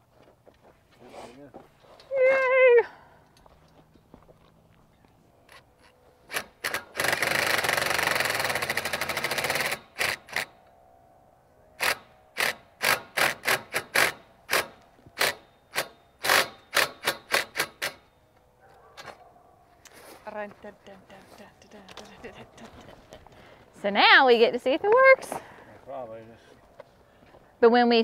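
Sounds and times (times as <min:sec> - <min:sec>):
cordless power driver running: 0:06.3 - 0:10.5.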